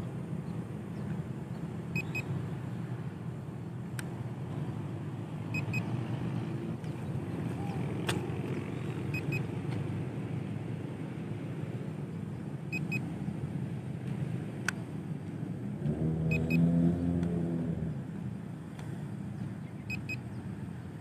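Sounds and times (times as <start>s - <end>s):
short high beeps: 2.0s - 2.3s, 16.3s - 16.7s.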